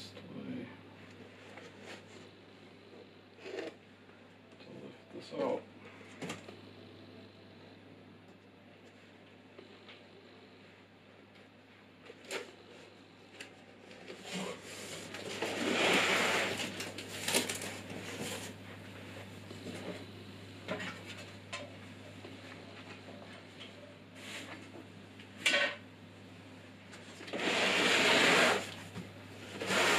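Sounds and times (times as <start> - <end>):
cardboard rustling and scraping: 14.1 - 18.6
cardboard scraping slide: 14.3 - 16.7, 27.3 - 28.8, 29.5 - 29.9.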